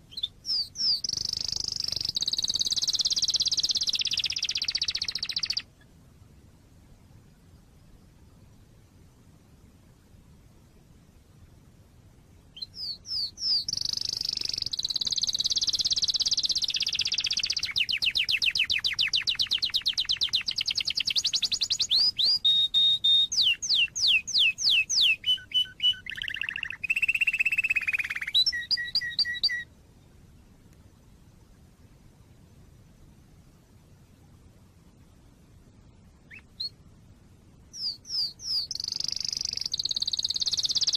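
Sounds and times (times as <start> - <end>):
canary singing: 0.0 - 5.7, 12.5 - 29.7, 36.3 - 36.8, 37.7 - 40.9.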